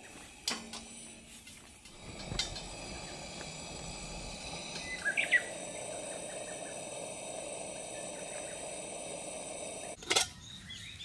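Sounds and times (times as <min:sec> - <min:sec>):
insects calling: 0:01.8 - 0:10.0
bird chirps: 0:04.8 - 0:06.8, 0:09.8 - 0:11.0.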